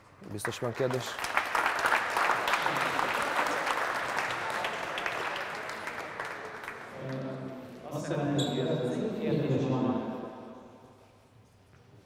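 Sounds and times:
audience clapping: 0:00.0 - 0:07.4.

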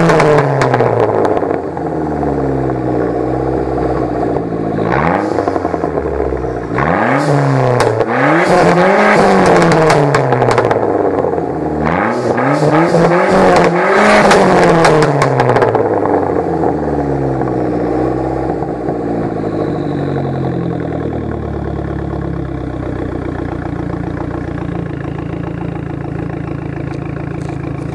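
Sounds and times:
car engine revving and idling: 0:00.0 - 0:27.9.

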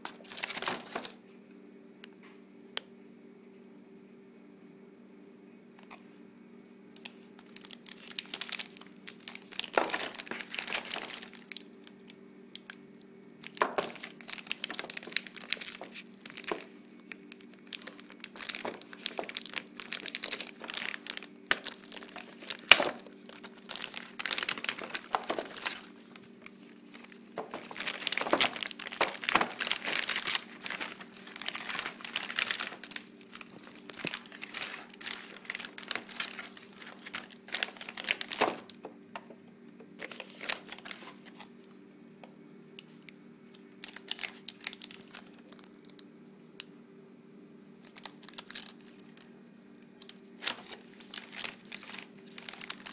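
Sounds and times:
plastic bag crinkling: 0:00.0 - 0:01.2, 0:07.0 - 0:12.8, 0:13.4 - 0:39.0, 0:40.0 - 0:41.5, 0:43.8 - 0:46.1, 0:47.8 - 0:52.9.

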